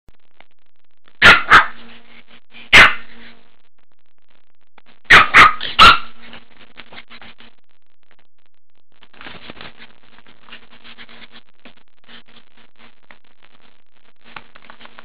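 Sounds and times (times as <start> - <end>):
puppy barking: 1.2 - 1.9, 2.7 - 3.2, 5.1 - 6.3.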